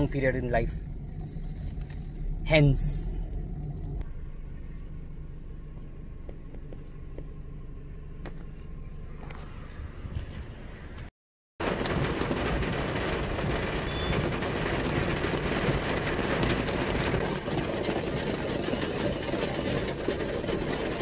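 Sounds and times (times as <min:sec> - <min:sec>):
city traffic: 0:00.0 - 0:11.1
heavy rain on car windows: 0:11.6 - 0:21.0.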